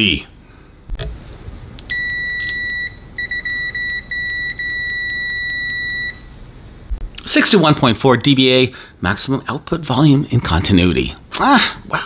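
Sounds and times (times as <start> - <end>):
multimeter continuity beeping: 1.9 - 6.2.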